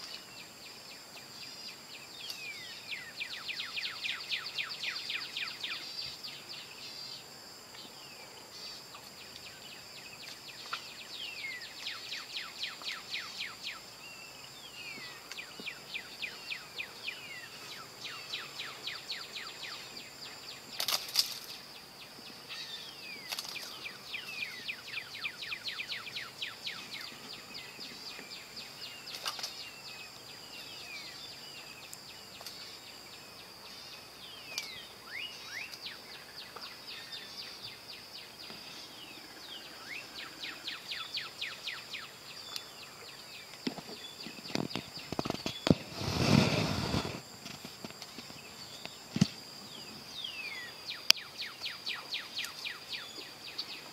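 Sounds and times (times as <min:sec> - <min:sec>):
birds chirping: 0:00.0 - 0:53.9.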